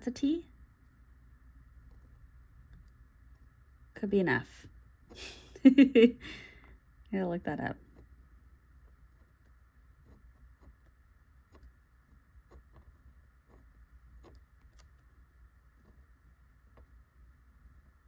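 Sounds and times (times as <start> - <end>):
faint room hum: 0.0 - 18.0
fountain pen scratching on paper: 7.8 - 15.2.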